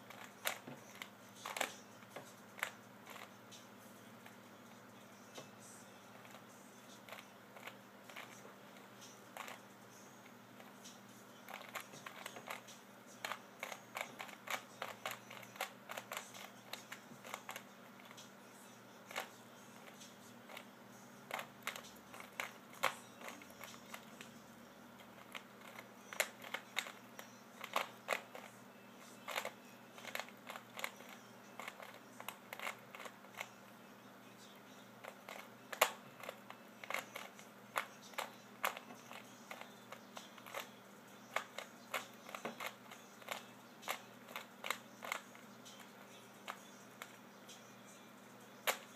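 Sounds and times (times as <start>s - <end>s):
puzzle cube clicking while turned: 0.0s - 1.8s, 2.6s - 3.3s, 7.0s - 9.6s, 11.5s - 18.3s, 19.1s - 20.7s, 21.3s - 24.3s, 25.0s - 28.5s, 29.2s - 33.6s, 35.0s - 47.2s, 48.6s - 48.9s.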